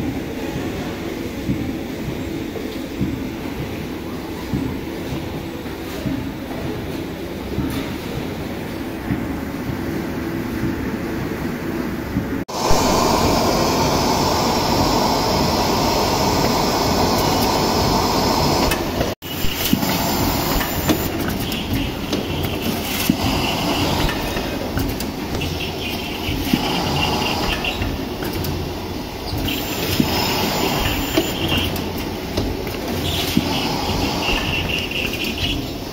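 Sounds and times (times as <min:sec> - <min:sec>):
hissing whir: 0:12.5 - 0:21.2
boxing machine running: 0:12.5 - 0:35.9.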